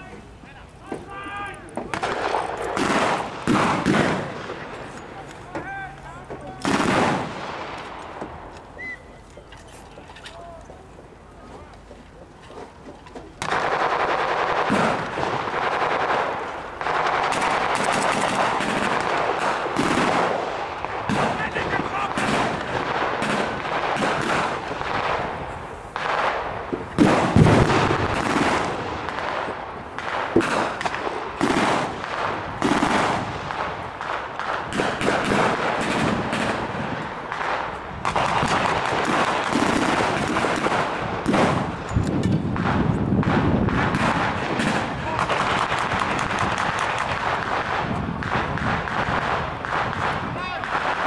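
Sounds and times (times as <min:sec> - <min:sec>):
loud gunshot crack: 0:01.8 - 0:04.7, 0:06.6 - 0:07.8, 0:13.4 - 0:25.4, 0:26.0 - 0:41.8, 0:42.5 - 0:51.0
rifle and machine gun fire: 0:01.9 - 0:04.8, 0:06.6 - 0:07.8, 0:13.4 - 0:41.8, 0:42.4 - 0:51.0.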